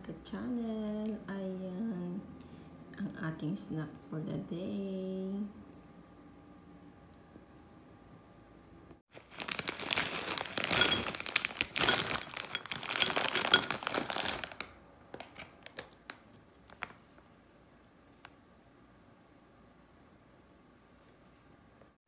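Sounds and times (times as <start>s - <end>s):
plastic snack bag crinkling: 9.1s - 17.0s.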